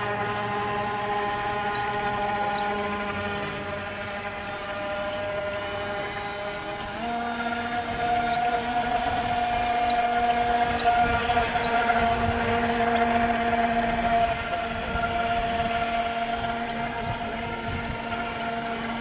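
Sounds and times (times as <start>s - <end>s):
model boat motor whine: 0.0s - 19.0s
water rushing from hull: 0.0s - 19.0s.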